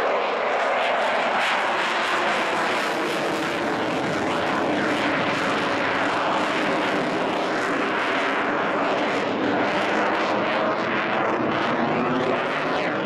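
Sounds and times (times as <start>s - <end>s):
jet engine roar overhead: 0.0s - 13.0s.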